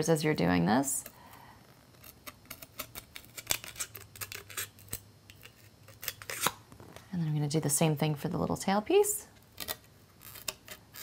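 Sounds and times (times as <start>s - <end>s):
scissors snipping styrofoam: 2.0s - 6.6s.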